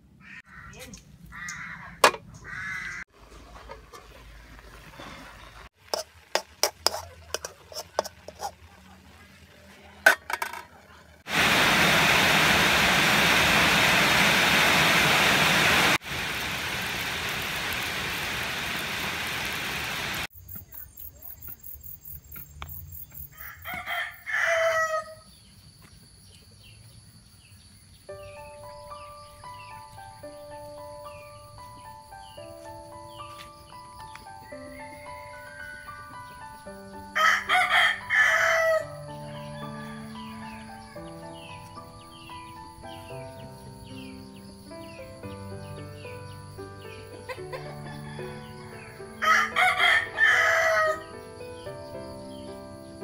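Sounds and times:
loud steady hiss: 11.2s - 20.3s
rooster crowing: 23.3s - 25.3s, 37.1s - 41.0s, 47.6s - 51.2s.

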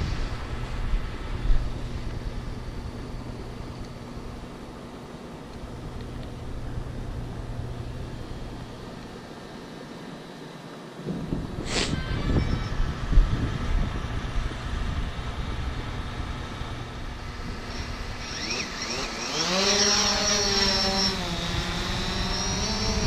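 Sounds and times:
drone propeller whine: 0.0s - 23.0s
microphone handling noise: 11.0s - 13.8s.

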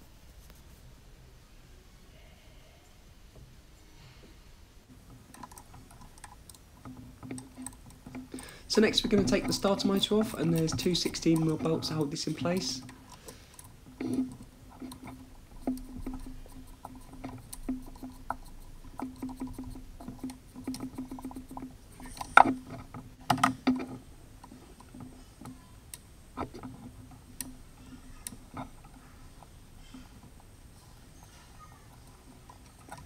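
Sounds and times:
hand tools clicking on metal: 5.3s - 30.4s.

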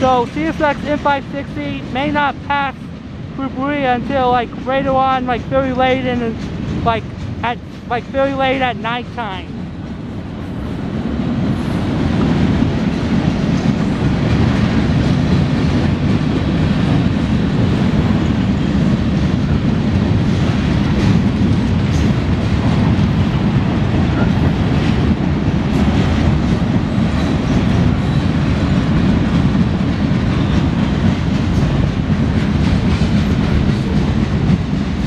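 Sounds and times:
train wheels rumbling on rail: 0.0s - 35.0s.

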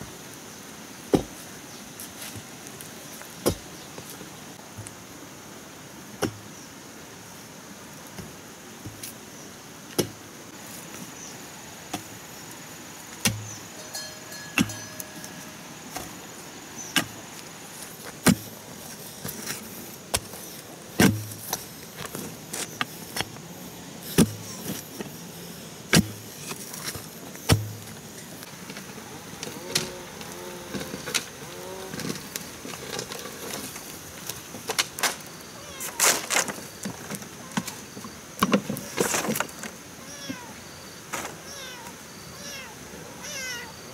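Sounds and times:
hoe chopping into stony soil: 1.1s - 1.4s, 3.4s - 3.8s, 13.2s - 13.6s, 16.9s - 18.6s, 19.2s - 23.4s, 24.1s - 24.8s, 25.9s - 27.9s.

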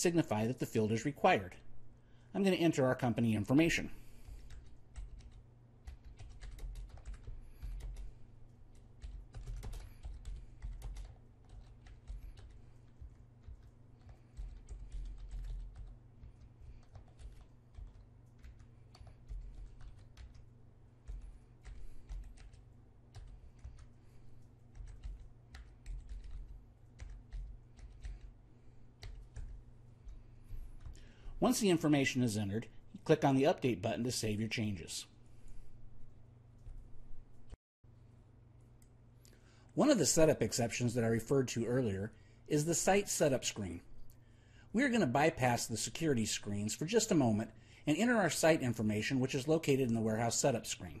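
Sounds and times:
low steady hum: 0.0s - 51.0s
typing on keyboard: 4.3s - 8.1s, 8.7s - 28.4s, 29.0s - 30.2s.

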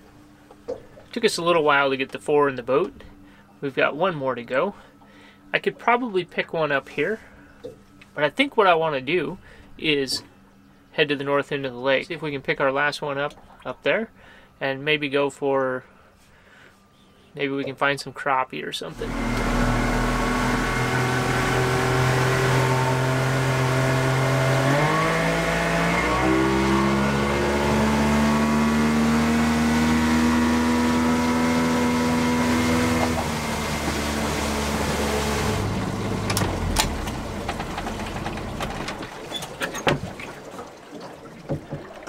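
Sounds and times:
motorboat engine: 18.9s - 42.0s.

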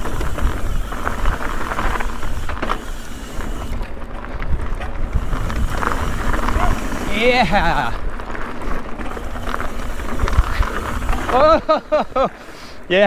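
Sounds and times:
wind rumble on microphone: 0.0s - 2.6s, 3.8s - 7.2s, 7.8s - 11.4s
bike rattling and knocking: 0.0s - 12.3s
bike tyres crunching on dirt: 0.0s - 13.0s.

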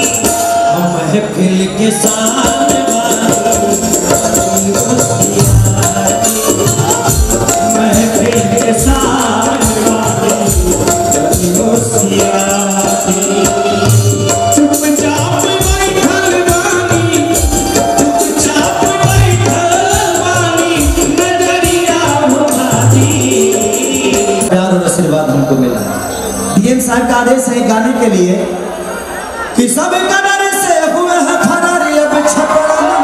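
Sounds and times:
man singing into a microphone: 0.0s - 25.9s
band playing: 0.0s - 29.8s
jingling tambourine rhythm: 2.0s - 24.5s
low drum beats: 2.0s - 24.5s.

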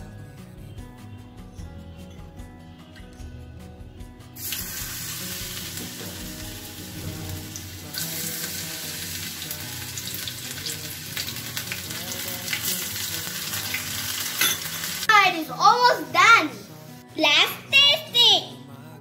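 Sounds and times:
oil sizzling and crackling: 4.4s - 17.0s.

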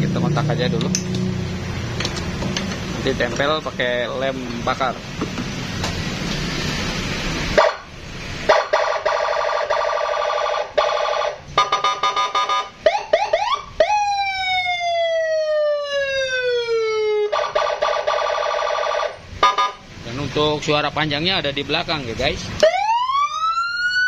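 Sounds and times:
electronic siren warbling and wailing: 8.5s - 19.8s, 22.6s - 24.0s.

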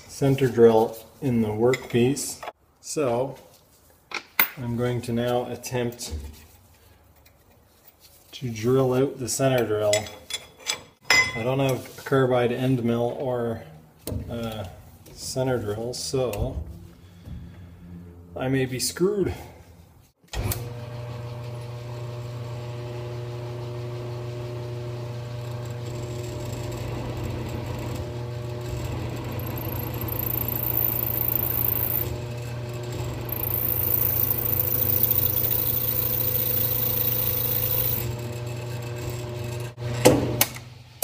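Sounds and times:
drill spindle humming: 20.6s - 40.1s
high-pitched drill squeal: 29.4s - 32.0s, 33.3s - 38.0s.

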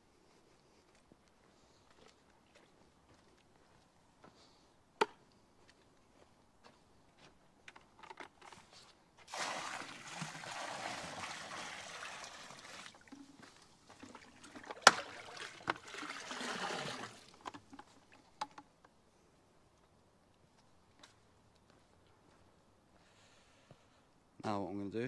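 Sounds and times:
liquid pouring and splashing into water: 9.2s - 18.3s.

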